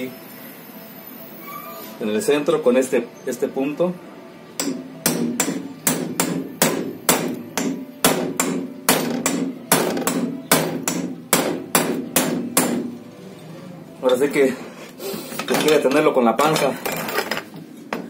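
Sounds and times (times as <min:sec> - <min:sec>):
hammer striking steel punch: 0:04.6 - 0:13.0.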